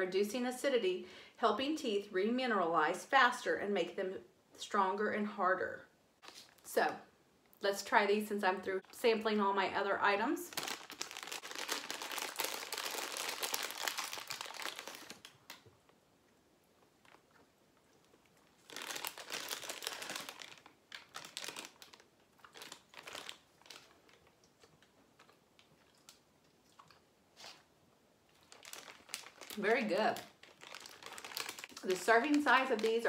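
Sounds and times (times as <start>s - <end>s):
plastic bag crinkling: 10.4s - 16.0s, 18.0s - 26.2s, 28.3s - 33.0s.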